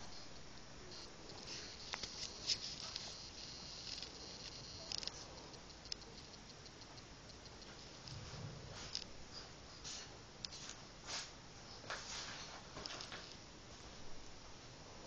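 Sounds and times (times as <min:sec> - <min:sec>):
magnetic balls clicking: 0:00.0 - 0:08.2.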